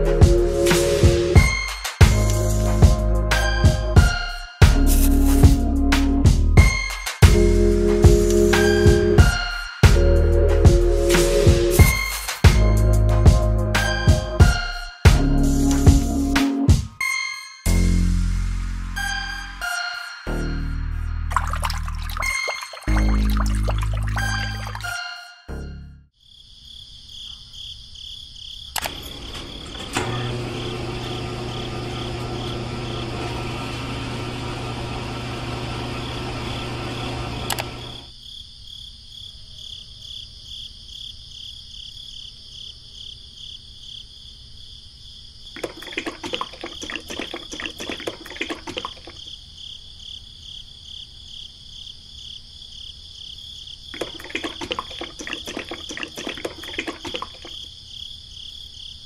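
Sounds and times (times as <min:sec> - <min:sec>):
crickets chirping: 0:20.0 - 0:25.3, 0:26.1 - 0:29.8, 0:37.7 - 0:59.0.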